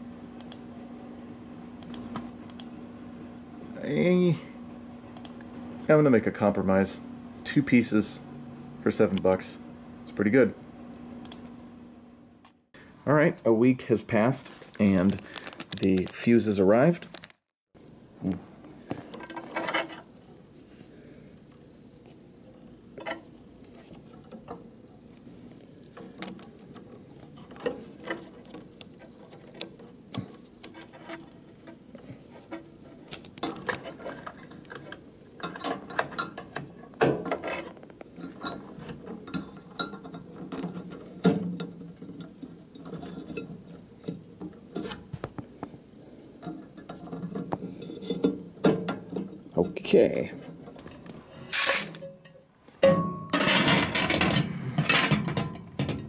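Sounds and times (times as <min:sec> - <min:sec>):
hands handling wiring and plastic: 0:14.4 - 0:17.5, 0:18.2 - 0:20.6, 0:21.5 - 0:52.4.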